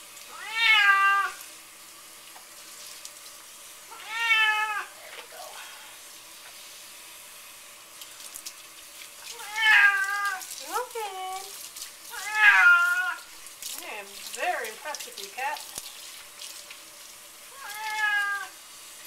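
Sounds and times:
tap water running: 0.0s - 19.0s
cat meowing loudly: 0.3s - 1.4s, 3.9s - 4.9s, 9.3s - 10.5s, 12.1s - 13.3s, 17.5s - 18.6s.

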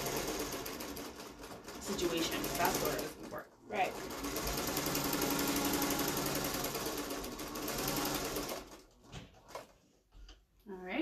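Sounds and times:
sewing machine running: 0.0s - 9.8s.

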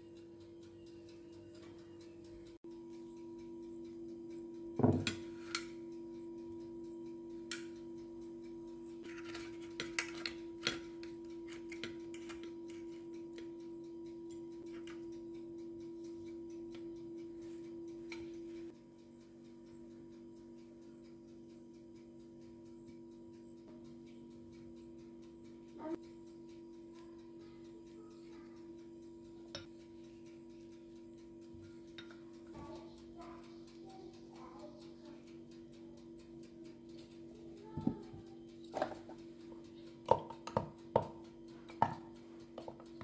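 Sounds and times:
utensils scraping a tray: 9.0s - 10.8s.

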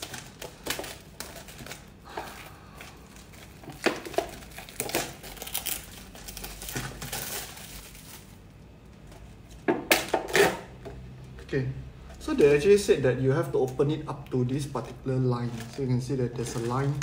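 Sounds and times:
plastic wrap crinkling and tearing: 0.0s - 8.6s, 13.5s - 17.0s.

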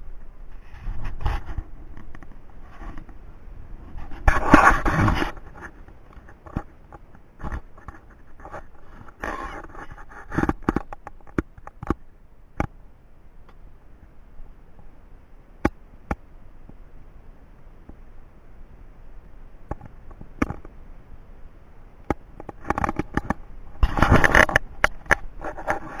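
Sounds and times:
low steady hiss: 0.0s - 26.0s
sharp knocks and clicks: 10.3s - 12.0s.

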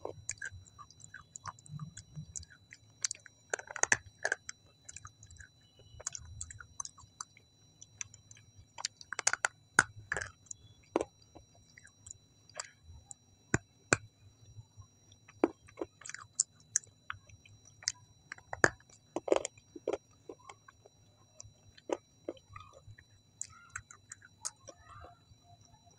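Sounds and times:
person chewing and biting: 0.0s - 14.1s, 15.1s - 25.2s
wet mouth clicks and smacks: 0.1s - 12.7s.

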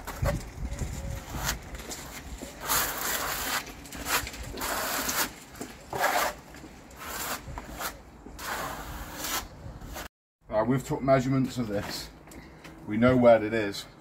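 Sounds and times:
trowel scraping plaster: 1.2s - 10.1s.

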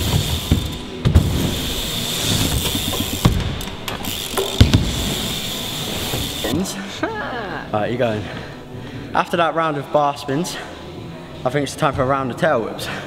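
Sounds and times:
bike knocking on ramp: 0.0s - 5.4s
bike tyres rolling on ramp: 0.0s - 6.5s.

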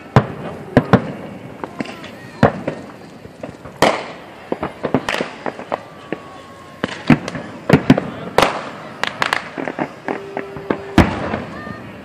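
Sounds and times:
fireworks bangs: 0.0s - 12.0s
small fireworks pops: 0.0s - 12.0s.

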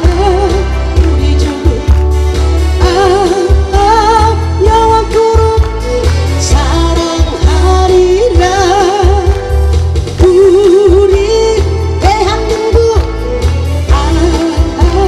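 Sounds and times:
amplified music with steady beat: 0.0s - 15.0s
woman singing into microphone: 0.0s - 15.0s.

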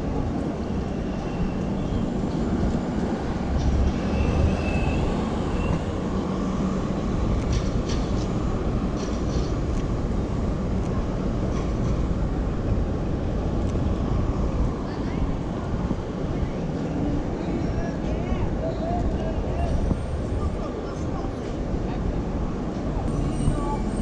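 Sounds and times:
rumble of passing vehicles: 0.0s - 24.0s
faint high squeal: 4.0s - 5.8s, 23.1s - 24.0s.

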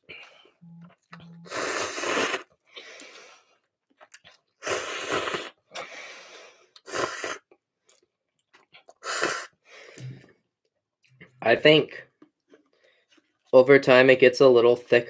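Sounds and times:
person chewing: 0.1s - 5.9s, 6.6s - 9.5s
noodle slurping: 1.4s - 3.4s, 4.0s - 7.6s, 8.6s - 9.6s.

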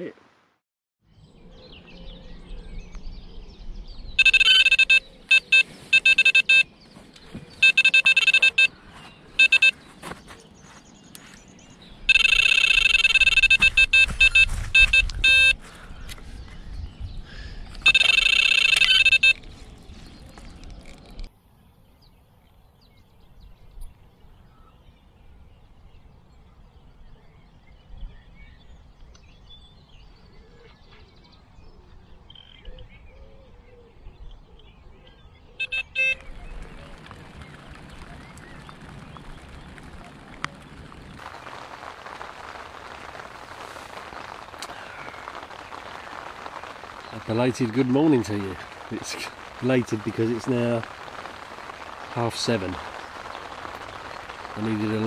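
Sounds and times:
bite alarm rapid high beeps: 4.2s - 6.7s, 7.6s - 8.7s, 9.4s - 9.8s, 12.1s - 15.6s, 17.8s - 19.4s, 35.6s - 36.2s
rain hissing: 4.2s - 6.7s, 7.5s - 9.8s, 11.9s - 16.4s, 17.2s - 21.3s, 36.5s - 55.0s.

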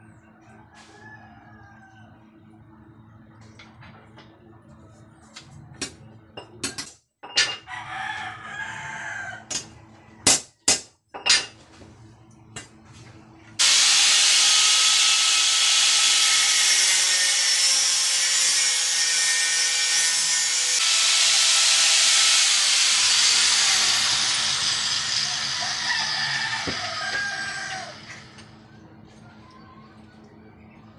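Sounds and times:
angle grinder grinding steel: 13.6s - 28.5s.

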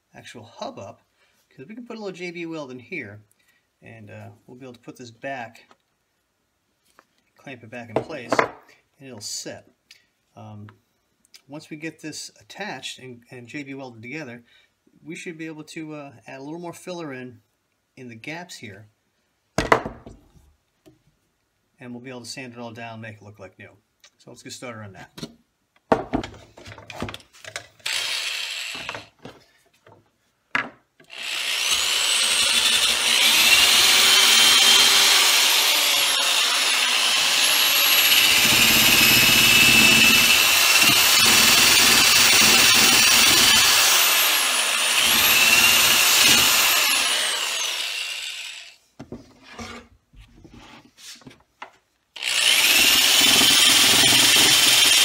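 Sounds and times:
electric drill with wire brush whining: 27.8s - 29.1s, 31.1s - 48.8s, 52.2s - 55.0s.

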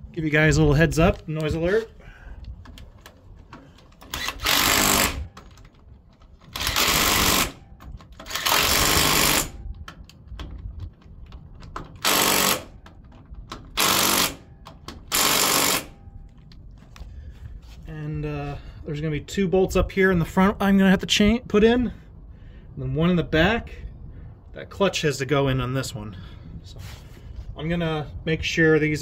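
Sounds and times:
impact driver bursts: 4.0s - 5.4s, 6.5s - 9.6s, 12.0s - 12.8s, 13.6s - 16.0s.

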